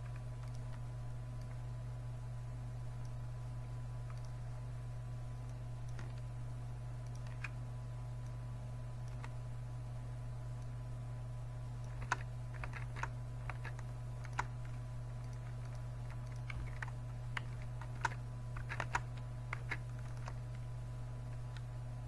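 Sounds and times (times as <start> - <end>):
low hum: 0.0 - 22.0
keyboard keystrokes: 7.0 - 7.6, 11.8 - 20.6.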